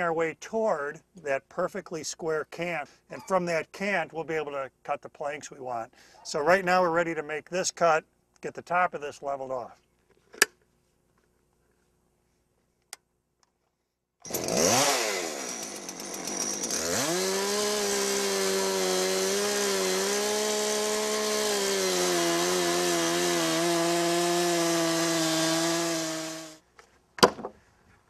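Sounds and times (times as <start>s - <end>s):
chainsaw cutting log: 14.2s - 26.6s.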